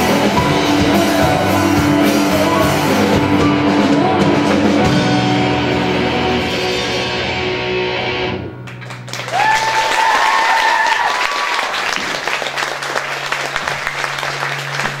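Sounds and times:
rock band chord ringing: 0:00.0 - 0:08.8
audience clapping and cheering: 0:08.6 - 0:15.0
high whoop: 0:09.3 - 0:12.0.

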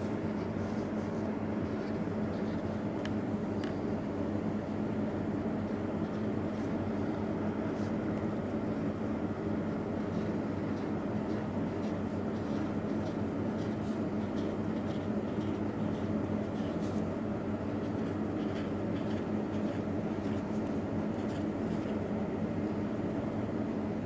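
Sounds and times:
marker scratching on paper: 0:00.0 - 0:03.0, 0:07.6 - 0:22.1
steady machine hum: 0:00.0 - 0:24.0.

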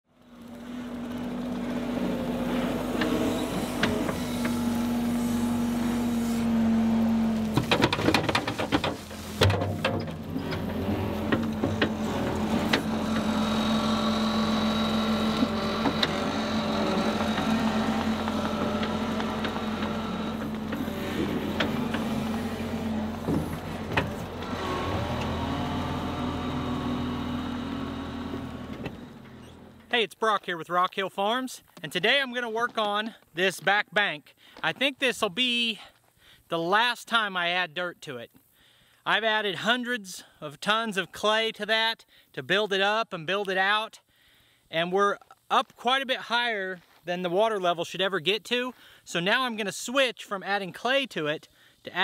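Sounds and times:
diesel engine running under load: 0:00.1 - 0:29.9
sharp clanks and knocks: 0:07.5 - 0:13.3.

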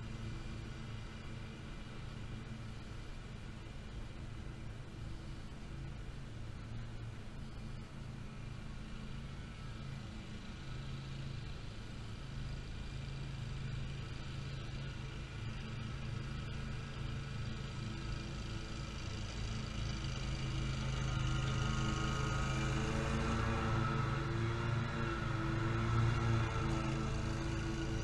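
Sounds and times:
mower engine running: 0:08.8 - 0:28.0.

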